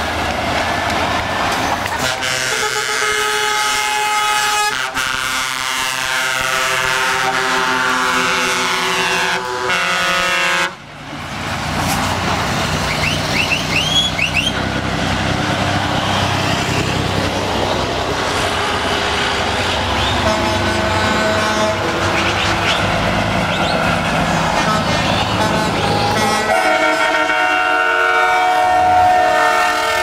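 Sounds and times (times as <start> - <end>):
truck diesel engines rumbling: 0.0 - 30.0
truck air horns: 1.8 - 10.8, 18.3 - 22.9, 24.4 - 30.0.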